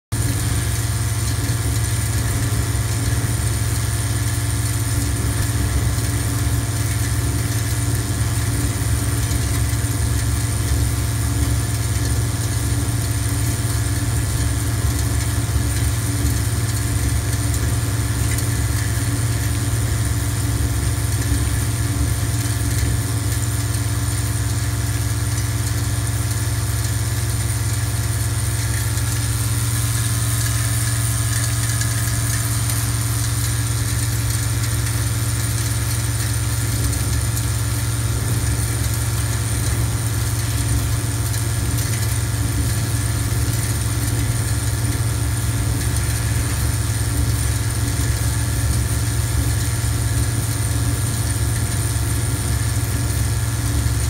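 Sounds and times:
low electromagnetic hum: 0.2s - 54.0s.

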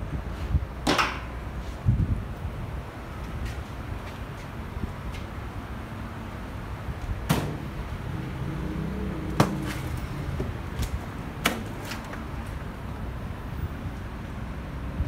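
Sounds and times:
sharp knocks on steel frame: 0.8s - 1.3s, 7.3s - 7.7s.

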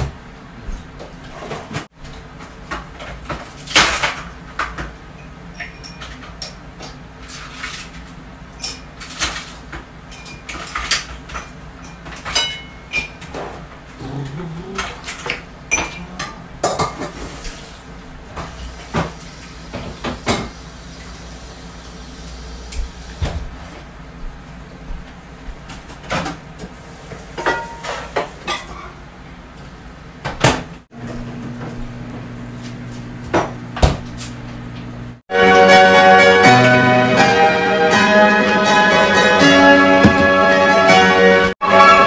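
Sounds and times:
dishes and utensils clinking: 5.1s - 13.6s, 14.7s - 17.6s, 27.3s - 29.0s.

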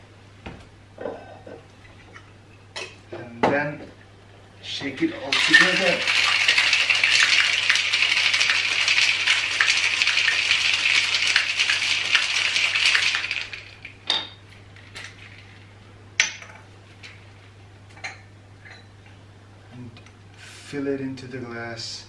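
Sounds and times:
ice rattling in cocktail shaker: 5.2s - 14.0s.

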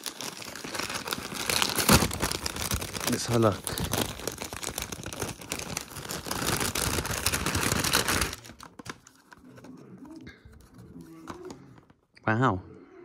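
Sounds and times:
light clicks of plastic packaging: 0.0s - 9.5s
paper bag and tissue rustling: 0.0s - 12.0s.

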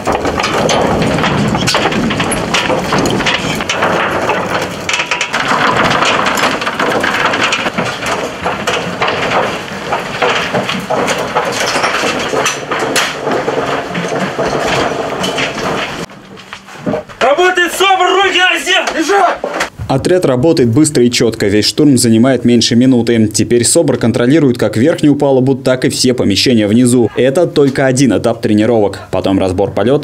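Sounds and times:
gear knocking and rattling: 0.0s - 19.8s.

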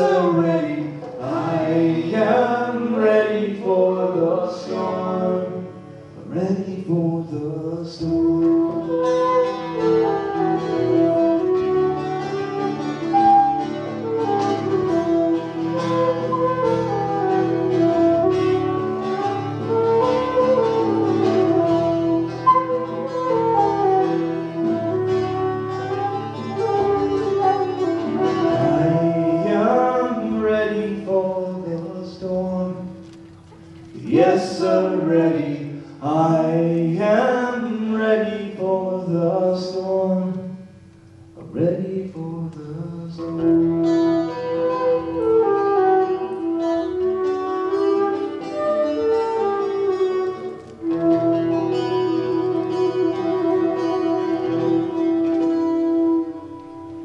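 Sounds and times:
tin whistle melody: 8.0s - 31.2s, 43.4s - 57.0s.

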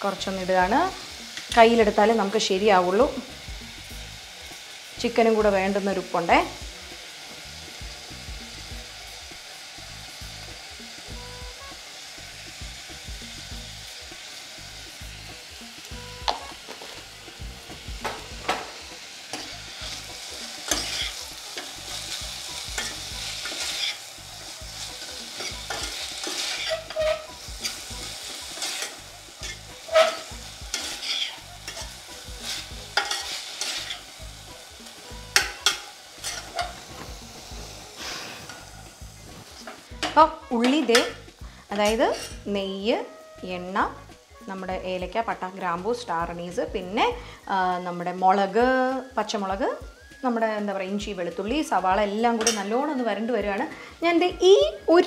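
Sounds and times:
onions sizzling in a pan: 0.0s - 55.0s
steel spoon scraping a pot: 19.2s - 24.2s, 24.8s - 34.2s, 35.3s - 37.0s, 41.8s - 42.5s.

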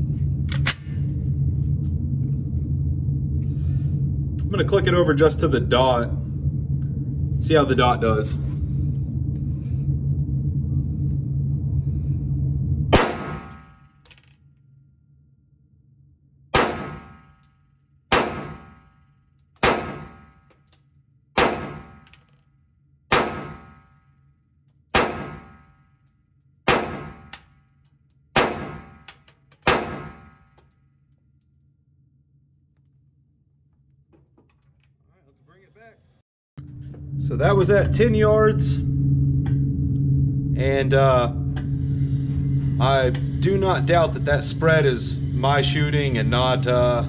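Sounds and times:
steady low hum: 0.0s - 47.0s
pistol shots: 13.0s - 13.8s, 16.6s - 17.4s, 18.1s - 18.9s, 19.6s - 20.4s, 21.4s - 22.1s, 23.1s - 23.8s, 24.9s - 25.7s, 26.7s - 27.4s, 28.4s - 30.4s.

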